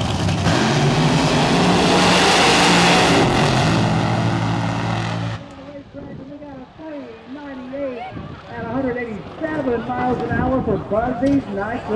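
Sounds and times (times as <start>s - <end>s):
drag racing car engine: 0.0s - 5.6s.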